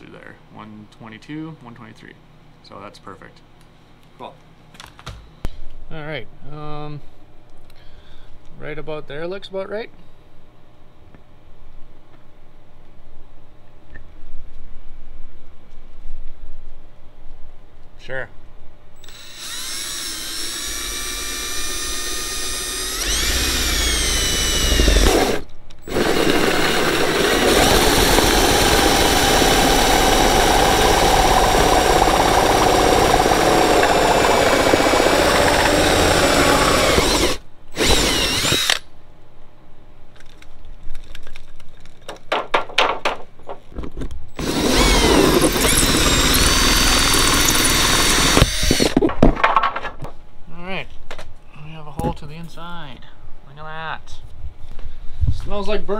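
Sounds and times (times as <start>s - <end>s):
cordless drill whining: 19.0s - 38.8s, 44.4s - 49.0s
hole saw cutting: 19.0s - 38.8s, 44.4s - 49.0s.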